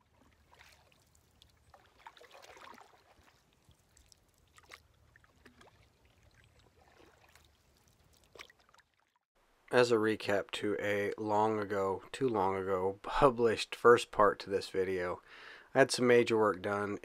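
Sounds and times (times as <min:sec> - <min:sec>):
paddle splashing in water: 0:00.0 - 0:09.2.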